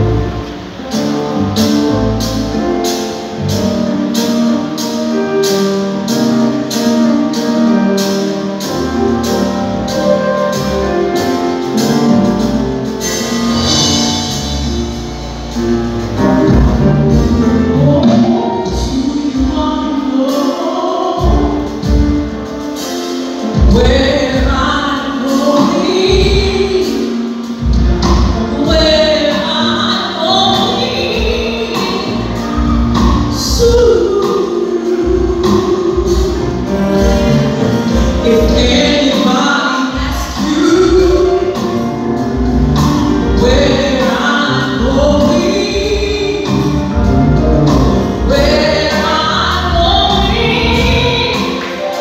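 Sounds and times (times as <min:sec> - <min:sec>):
instrumental accompaniment: 0:00.0 - 0:52.0
steady beat: 0:30.3 - 0:52.0
gospel singing: 0:43.4 - 0:52.0.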